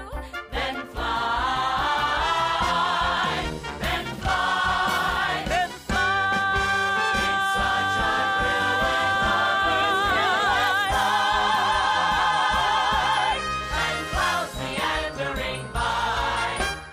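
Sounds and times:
chorus singing: 0.5s - 16.9s
orchestra playing: 2.2s - 11.6s.

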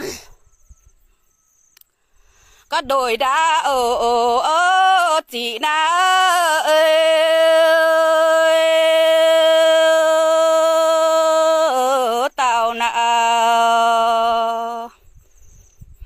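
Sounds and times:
person singing unaccompanied: 2.7s - 15.0s.

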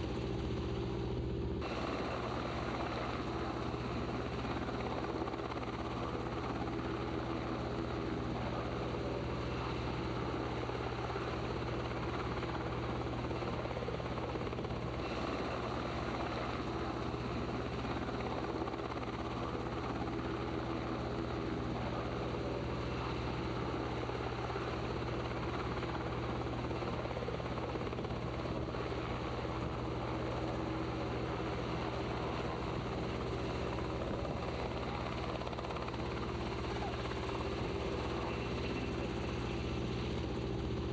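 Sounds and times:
aircraft engine drone: 0.0s - 40.9s.

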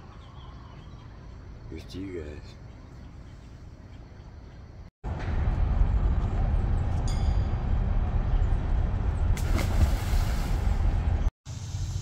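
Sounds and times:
wind rumble on microphone: 5.1s - 11.3s
splash into river: 9.4s - 10.8s.

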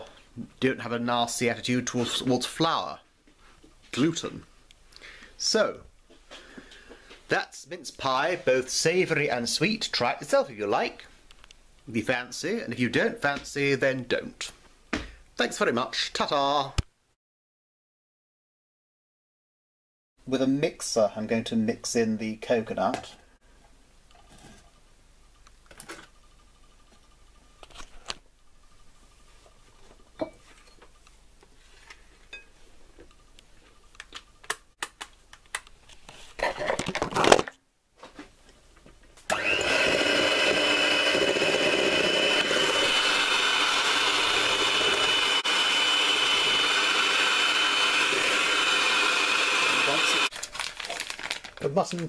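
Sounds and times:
electric hand mixer whining: 39.3s - 50.3s.

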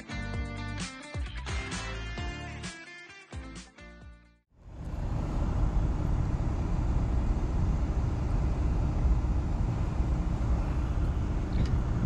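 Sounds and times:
faint steady hum: 4.6s - 12.0s
low outdoor rumble: 4.6s - 12.0s.

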